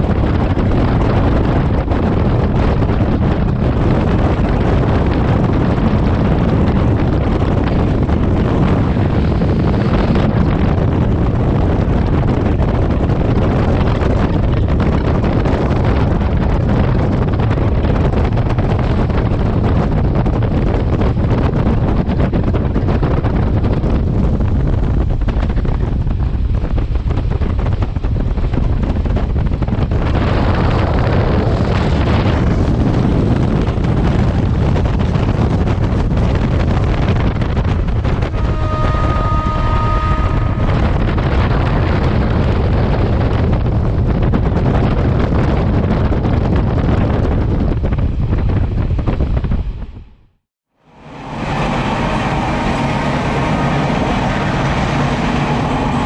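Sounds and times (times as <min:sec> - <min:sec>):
train running noise: 0:00.0 - 0:50.2, 0:50.8 - 0:56.0
wind buffeting microphone: 0:00.0 - 0:56.0.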